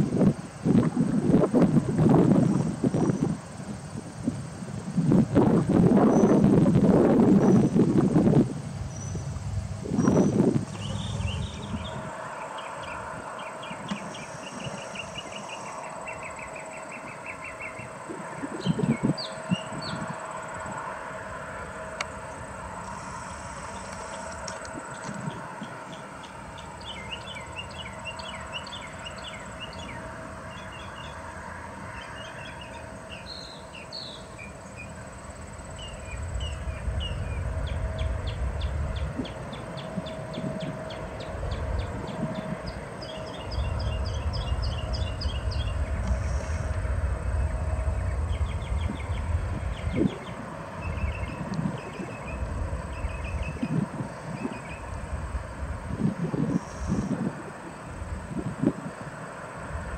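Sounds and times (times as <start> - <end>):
distant jet engines on takeoff: 0.0 - 59.9
birds chirping: 9.9 - 20.1, 35.7 - 55.0.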